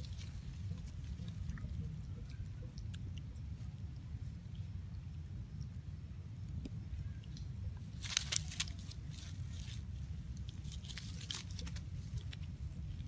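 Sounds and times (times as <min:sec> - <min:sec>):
dry leaves rustling: 0:00.0 - 0:01.8, 0:07.8 - 0:13.0.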